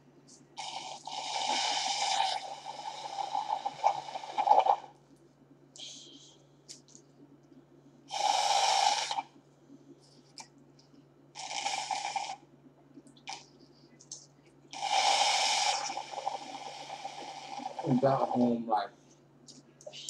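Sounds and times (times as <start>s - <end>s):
slurping through a straw: 0.6s - 4.9s, 8.1s - 9.3s, 14.8s - 18.4s.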